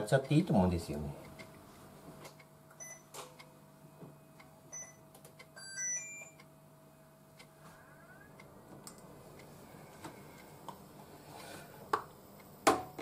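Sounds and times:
faint steady hum: 0.0s - 13.0s
touch panel beeping: 5.6s - 6.4s.

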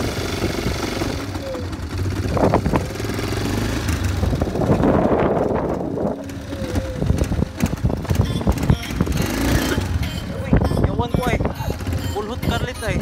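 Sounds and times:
quad bike engine running: 0.0s - 13.0s.

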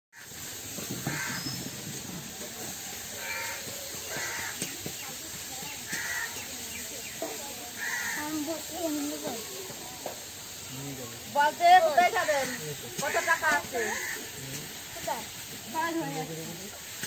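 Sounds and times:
crow cawing: 1.0s - 1.6s, 3.2s - 4.8s, 5.8s - 6.5s, 7.7s - 9.2s, 12.0s - 15.2s.

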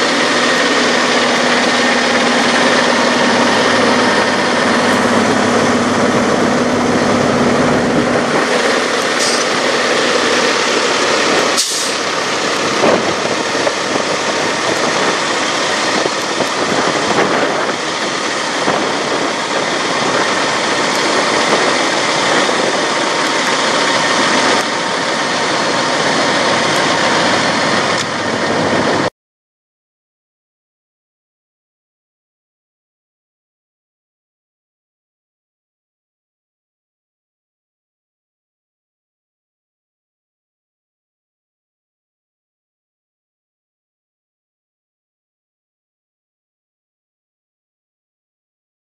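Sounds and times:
diesel engine idling: 0.0s - 29.1s.

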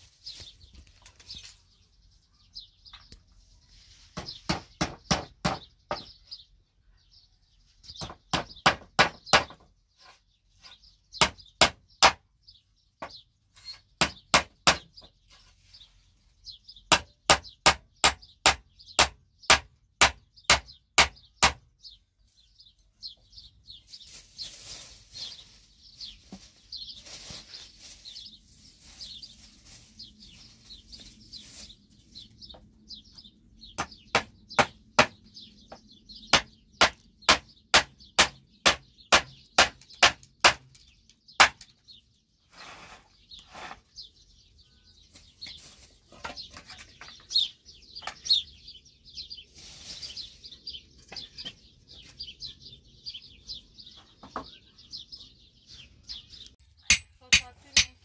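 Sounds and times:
birds chirping: 0.0s - 58.0s
hammer striking nails into wood: 8.0s - 9.6s, 11.2s - 12.2s, 14.0s - 15.0s, 16.9s - 21.7s, 33.8s - 35.2s, 36.3s - 40.8s.

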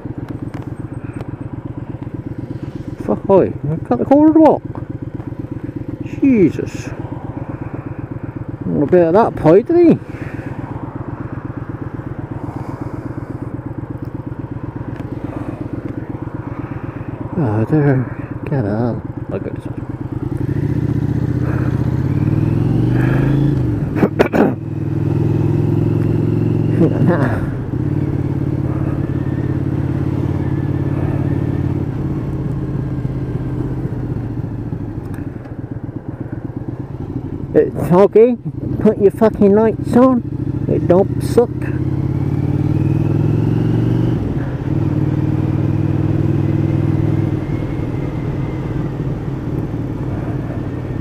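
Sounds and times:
motorcycle engine idling: 0.0s - 51.0s.

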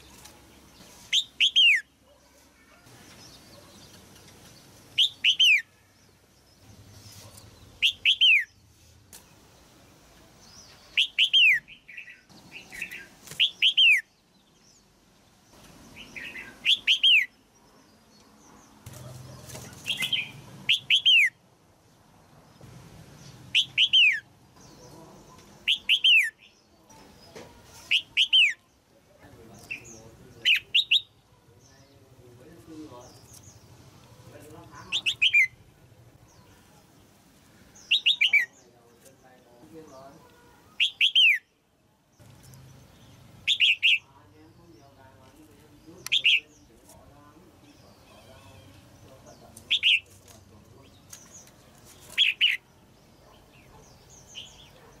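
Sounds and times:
bird calling whistled notes: 5.0s - 5.7s, 7.8s - 8.5s, 40.8s - 41.5s.

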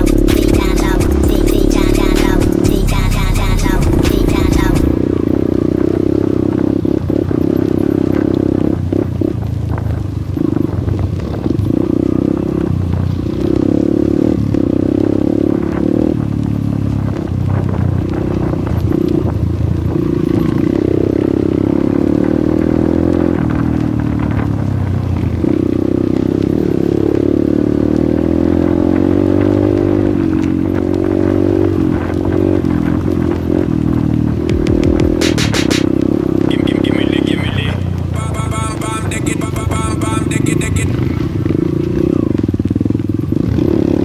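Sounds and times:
motorbike engine revving: 0.0s - 44.0s.

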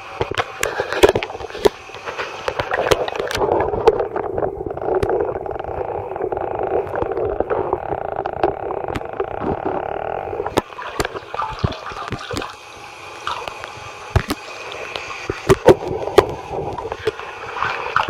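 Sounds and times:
muffled underwater sound: 0.0s - 18.0s
water dripping and splashing: 10.5s - 18.0s.

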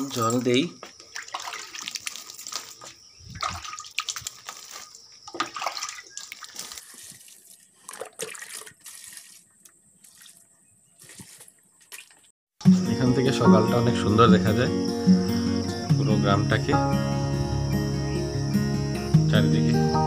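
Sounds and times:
water splashing onto plants: 0.0s - 12.3s.

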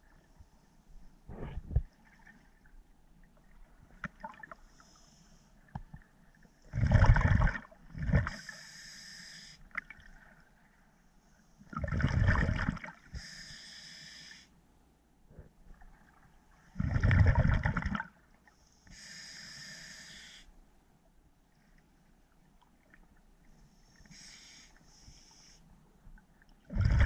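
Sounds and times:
exhaled bubbles gushing underwater: 6.7s - 8.4s, 11.7s - 12.9s, 16.8s - 18.1s, 26.7s - 27.0s.

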